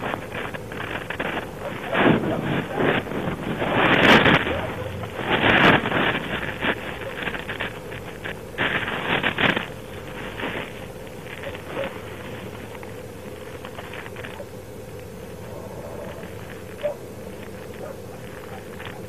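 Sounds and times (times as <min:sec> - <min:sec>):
wind buffeting microphone: 0:00.0 - 0:10.2
faint constant hum: 0:00.0 - 0:19.0
steady hiss: 0:00.0 - 0:19.0.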